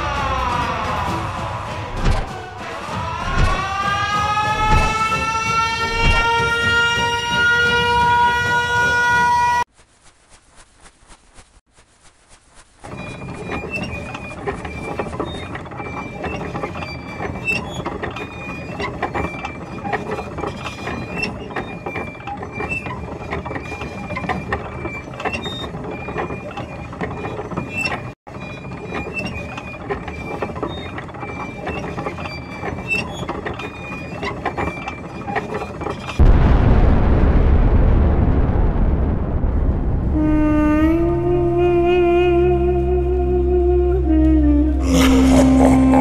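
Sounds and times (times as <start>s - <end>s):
deep rumbling noise: 0.0s - 6.4s, 36.2s - 46.0s.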